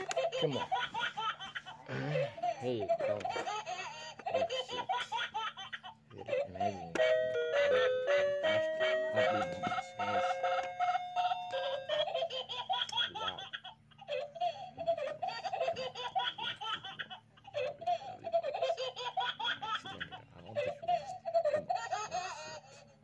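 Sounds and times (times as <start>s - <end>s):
high-pitched giggling laughter: 8.6s - 23.0s.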